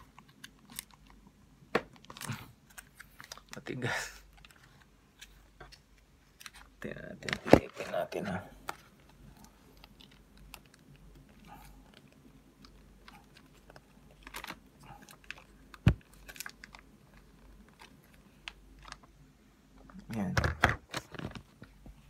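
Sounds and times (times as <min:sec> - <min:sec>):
thin plastic crinkling and clicking: 0:00.0 - 0:08.0, 0:08.6 - 0:22.0.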